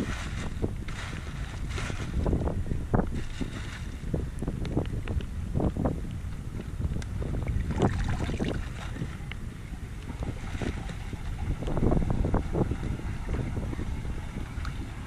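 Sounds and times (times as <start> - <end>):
wind on microphone: 0.0 - 15.0
floodwater splashing: 7.6 - 9.2.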